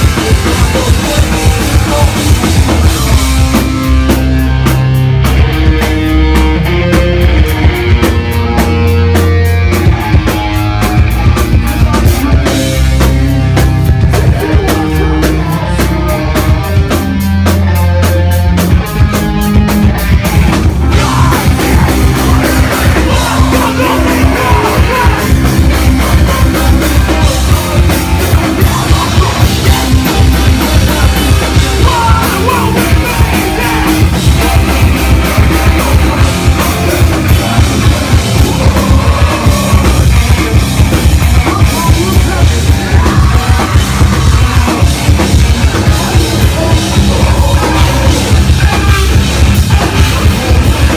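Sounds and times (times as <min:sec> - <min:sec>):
vocalist yelling and singing: 0:00.0 - 0:03.6, 0:14.1 - 0:17.2, 0:19.9 - 0:50.9
rock band playing live: 0:00.0 - 0:50.9.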